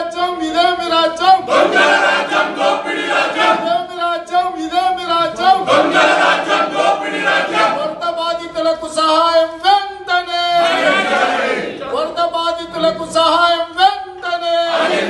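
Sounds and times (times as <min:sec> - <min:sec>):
crowd chanting slogans: 0:01.4 - 0:03.8, 0:05.5 - 0:08.0, 0:10.6 - 0:11.9, 0:14.7 - 0:15.0.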